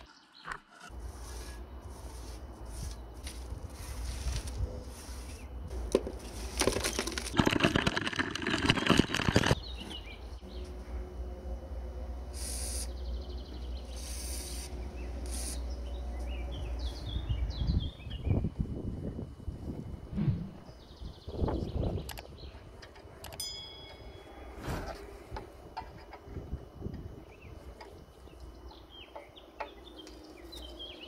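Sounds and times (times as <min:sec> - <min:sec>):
rust flakes crunching and scraping: 0:01.0 - 0:09.6
aerosol spray can hissing: 0:12.4 - 0:12.9, 0:13.9 - 0:15.6.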